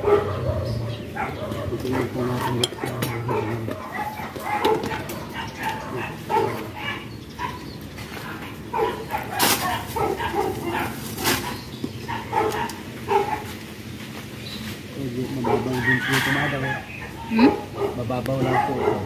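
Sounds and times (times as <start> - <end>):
dog barking: 0.0 - 13.6, 15.4 - 16.1, 17.2 - 19.0.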